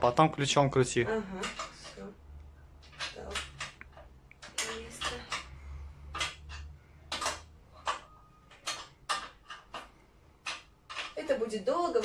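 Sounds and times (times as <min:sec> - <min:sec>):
metallic clinks and taps: 0:02.8 - 0:11.2.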